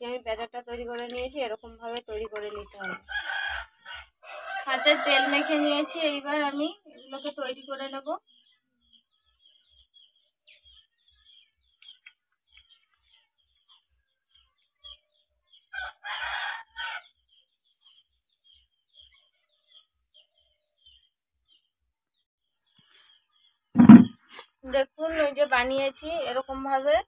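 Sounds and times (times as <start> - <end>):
small birds chirping: 0.0 - 4.6, 6.5 - 27.0
rooster crowing: 2.9 - 6.0.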